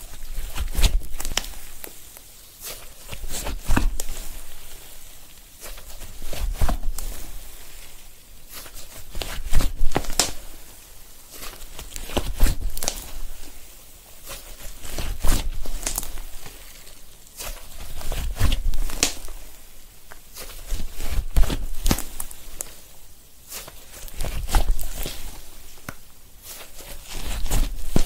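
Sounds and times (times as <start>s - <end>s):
slime crackling and squelching: 0.0s - 28.0s.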